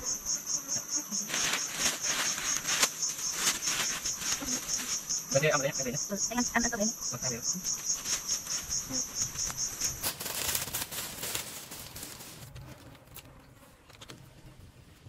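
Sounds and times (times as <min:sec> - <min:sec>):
insect chirping: 0:00.0 - 0:12.2
hissing rustling noise: 0:01.2 - 0:05.4, 0:07.7 - 0:12.6.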